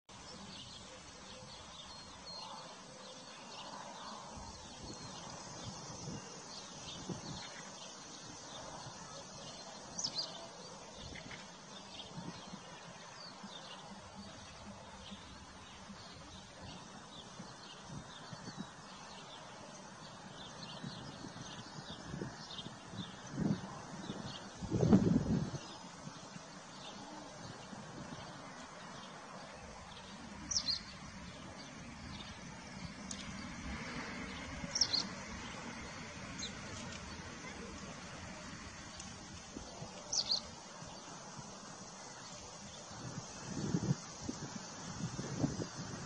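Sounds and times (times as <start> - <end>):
birdsong: 0.1 - 46.0.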